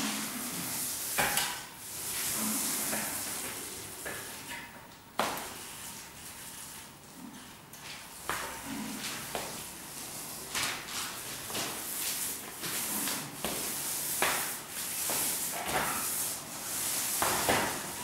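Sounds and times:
paint roller wet hiss: 0:00.0 - 0:04.6, 0:09.0 - 0:18.0.

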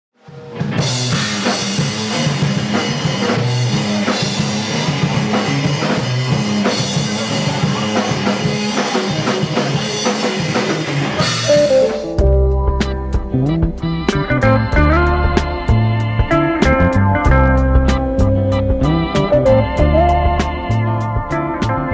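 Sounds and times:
drum kit beat: 0:00.4 - 0:21.9
low guitar riff: 0:11.2 - 0:21.9.

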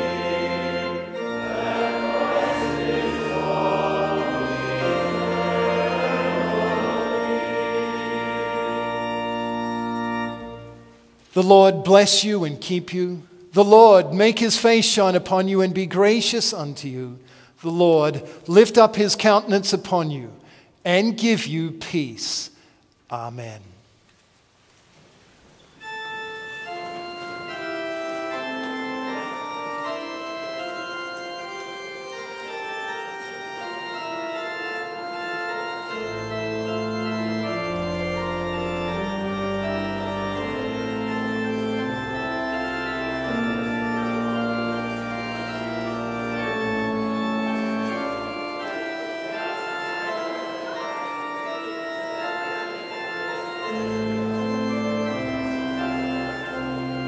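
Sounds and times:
deep organ bass notes: 0:00.0 - 0:10.9, 0:34.0 - 0:57.0
organ chords: 0:00.0 - 0:23.7, 0:25.8 - 0:57.0.

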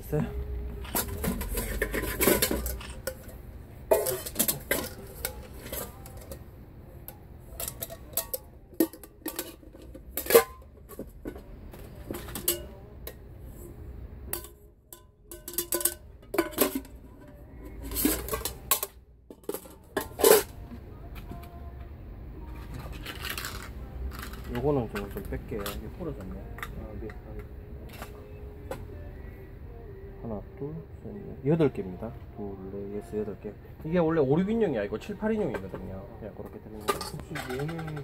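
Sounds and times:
metal cookware clattering: 0:00.9 - 0:06.4, 0:07.5 - 0:12.8, 0:14.3 - 0:17.0, 0:17.8 - 0:20.5, 0:36.8 - 0:38.0.

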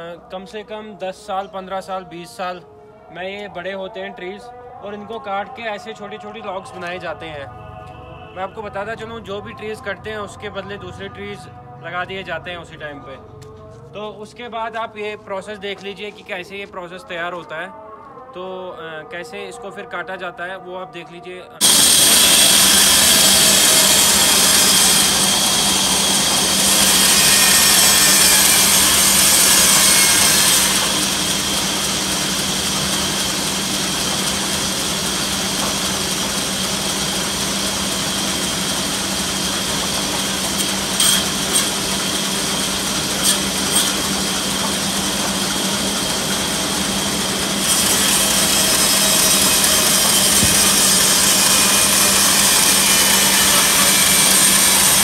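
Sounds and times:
band saw cutting log: 0:21.6 - 0:55.0.

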